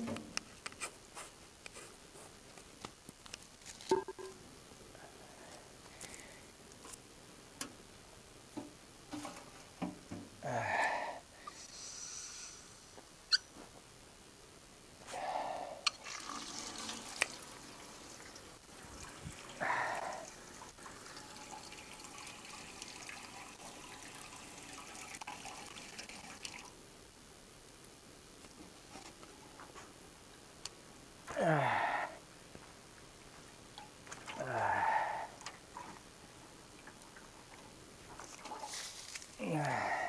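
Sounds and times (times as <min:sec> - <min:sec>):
water splashing and pouring: 0:15.9 - 0:26.7, 0:36.8 - 0:39.4.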